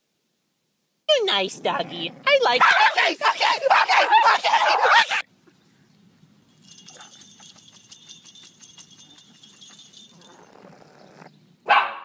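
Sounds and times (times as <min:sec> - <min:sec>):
dog collar bell jingling: 0:06.4 - 0:11.2.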